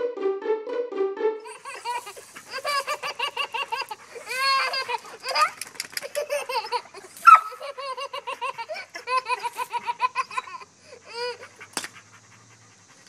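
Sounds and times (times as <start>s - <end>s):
baby laughing: 1.4s - 11.8s.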